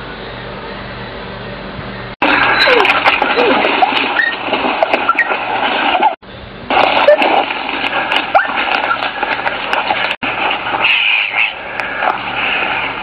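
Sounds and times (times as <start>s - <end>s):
dogs yelping and whining: 2.4s - 6.2s, 8.3s - 9.1s.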